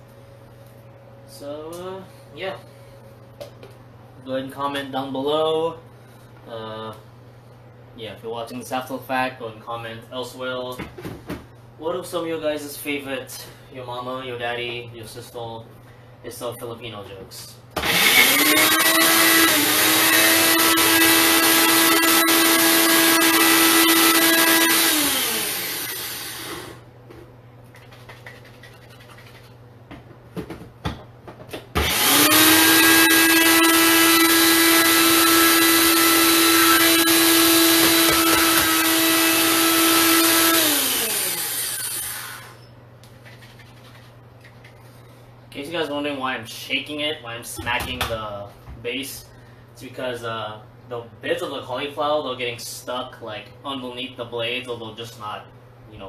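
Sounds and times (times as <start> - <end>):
blender motor running: 17.8 - 26.8, 31.8 - 42.6.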